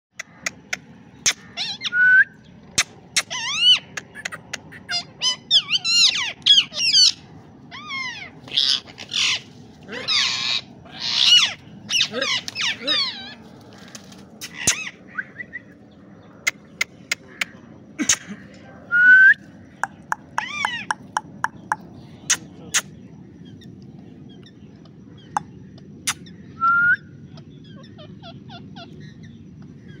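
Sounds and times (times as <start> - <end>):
sharp clicks: 0.2 - 1.4, 19.8 - 22.9
parakeets squawking: 0.2 - 1.9, 2.7 - 15.4, 19.8 - 23.7, 27.3 - 30.0
parakeet squawks: 2.8 - 9.4, 19.9 - 22.9
rising whistle: 26.6 - 27.1.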